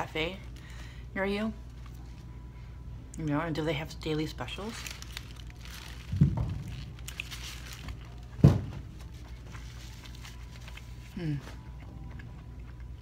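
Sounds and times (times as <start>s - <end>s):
faint wrapper crinkling: 4.4s - 8.4s, 9.0s - 11.2s
chewing: 10.7s - 13.0s.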